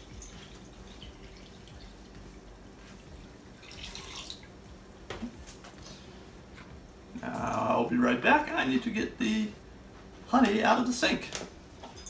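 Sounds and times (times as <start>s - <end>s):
water trickling into plastic bucket: 3.6s - 4.5s.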